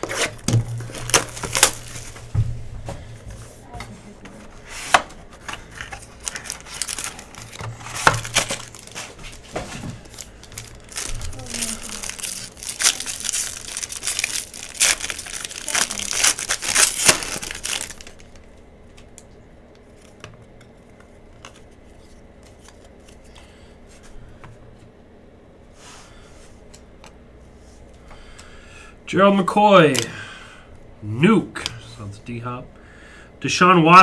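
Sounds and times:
foil wrapper tearing and crinkling: 0.0 - 2.2, 5.6 - 18.5.

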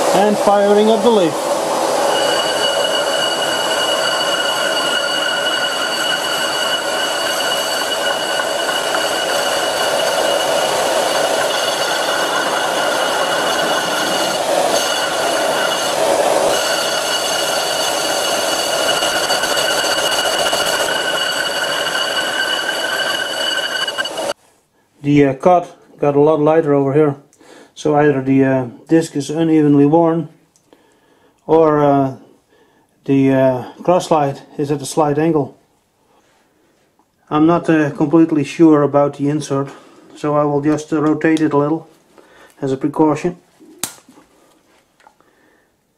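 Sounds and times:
high whine: 0.0 - 24.4
lathe cutting metal: 0.0 - 24.4.

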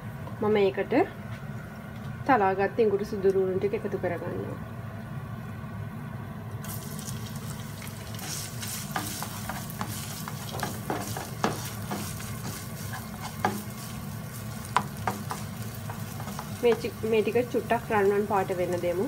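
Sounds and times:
garlic sizzling in hot oil: 6.6 - 19.0
spatula scraping and tapping pan: 8.2 - 17.1.

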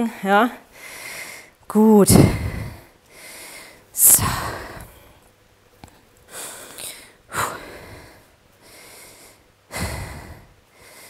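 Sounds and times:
woman breathing hard: 0.0 - 5.2, 5.9 - 11.0.

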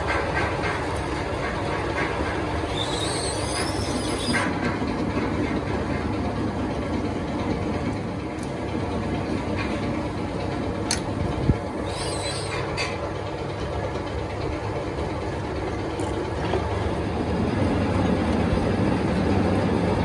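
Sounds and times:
metal lathe rumbling: 0.0 - 20.0
high squeal: 2.7 - 4.4, 11.8 - 12.8.

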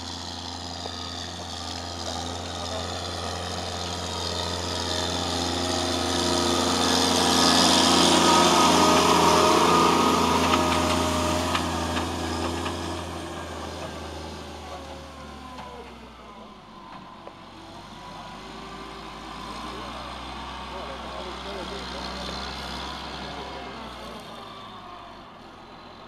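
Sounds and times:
diesel engine driving past: 0.0 - 26.0.

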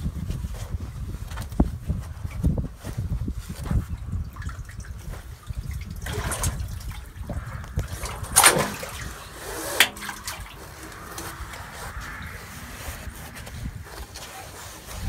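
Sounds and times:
soft wash of water: 3.5 - 15.0.

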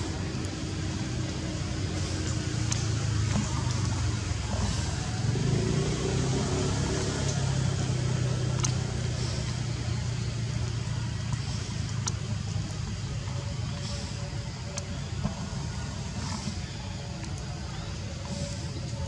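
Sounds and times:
steady low drone: 0.0 - 19.0
faint sharp clicks: 8.4 - 15.4.

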